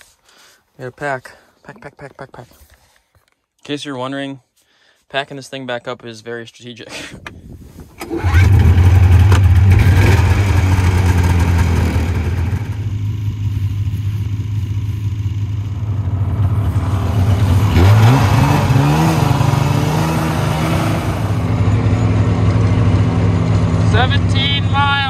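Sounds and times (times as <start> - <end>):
snowmobile engine idling: 8.4 - 25.0.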